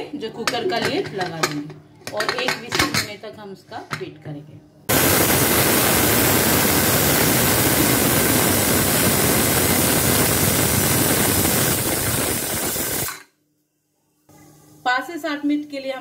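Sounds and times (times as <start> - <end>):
pressure cooker steam hissing: 4.9 - 13.3.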